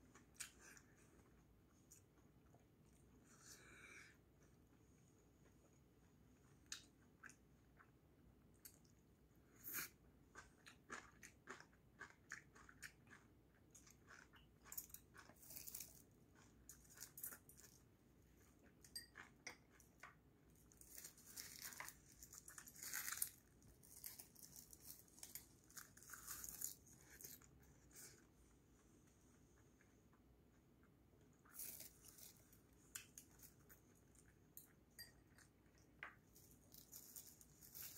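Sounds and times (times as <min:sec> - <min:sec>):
chewing and smacking: 0:10.3 - 0:17.8.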